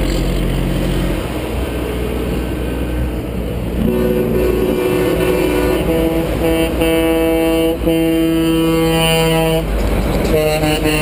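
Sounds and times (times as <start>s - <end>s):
diesel engines and tyres rumbling: 0.0s - 11.0s
truck air horns blowing: 3.8s - 11.0s.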